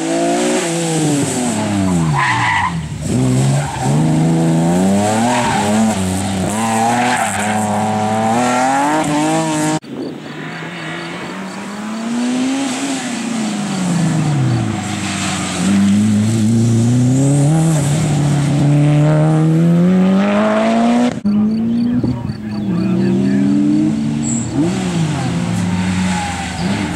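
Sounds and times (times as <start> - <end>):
race car engine accelerating: 10.5 - 26.9.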